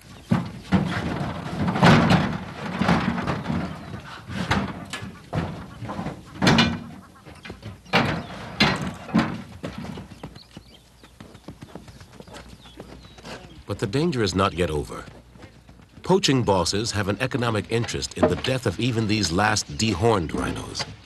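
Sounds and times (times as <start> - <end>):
animal stamping in a crate: 0.0 - 13.7
sharp knocks and bangs: 0.2 - 10.2, 16.9 - 19.4.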